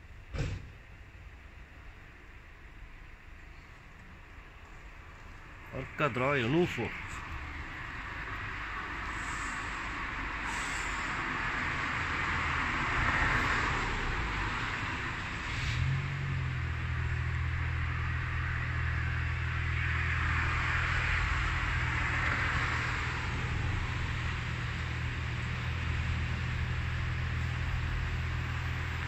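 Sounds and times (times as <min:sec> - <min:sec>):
steady hiss: 0:00.3 - 0:12.0.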